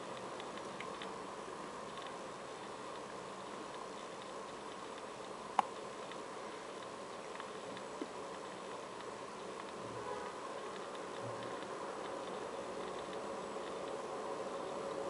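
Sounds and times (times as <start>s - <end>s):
faint ticks: 0.0s - 15.0s
low background hiss: 0.0s - 15.0s.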